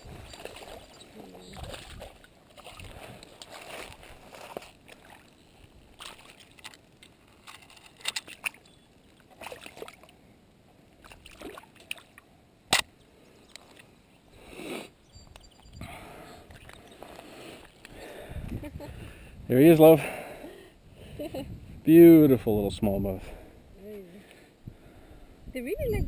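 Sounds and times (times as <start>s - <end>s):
water sloshing and splashing: 0.0s - 10.2s, 10.9s - 12.3s, 16.4s - 17.9s.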